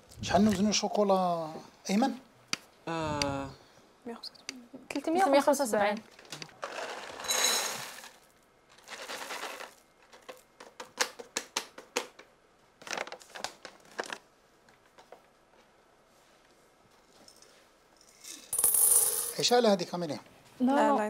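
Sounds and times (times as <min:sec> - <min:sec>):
packaging rustling: 0:12.8 - 0:14.3.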